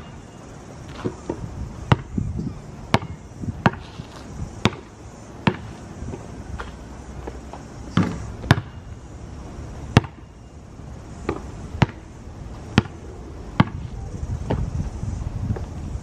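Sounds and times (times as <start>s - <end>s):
basketball bouncing on asphalt: 0.9s - 2.2s, 2.9s - 9.0s, 9.8s - 10.3s, 11.2s - 14.8s.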